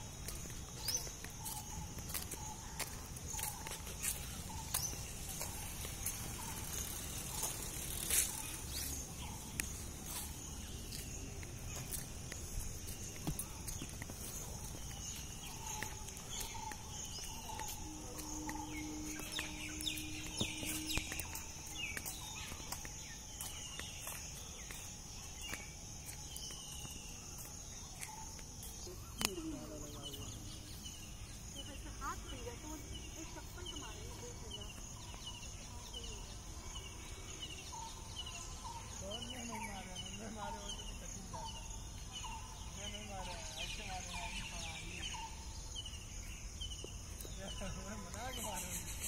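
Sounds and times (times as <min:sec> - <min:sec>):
birds chirping: 0:00.0 - 0:49.0
high-pitched insect drone: 0:00.2 - 0:26.2.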